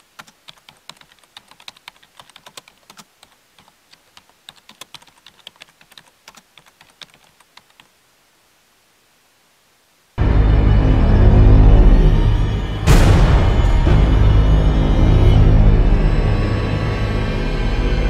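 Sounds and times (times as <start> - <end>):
keyboard typing clicks: 0.2 - 7.9.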